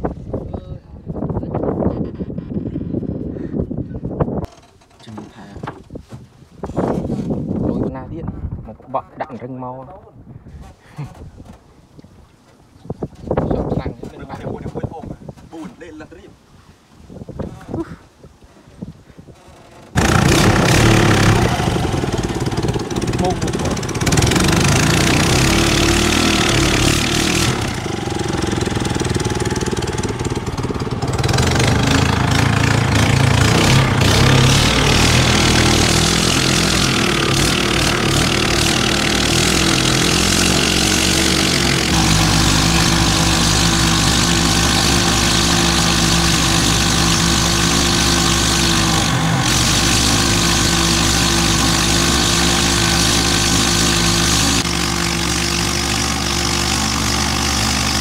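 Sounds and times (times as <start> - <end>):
small boat engine running: 19.9 - 58.0.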